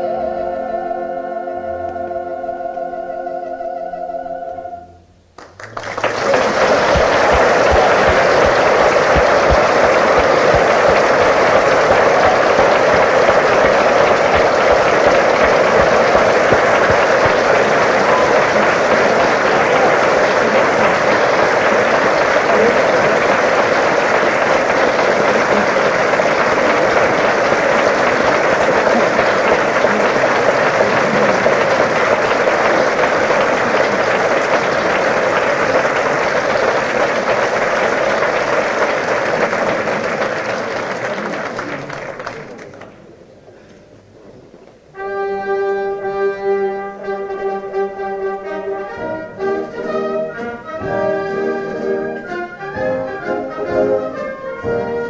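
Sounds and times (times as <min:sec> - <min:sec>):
audience applauding: 0:05.4 - 0:43.2.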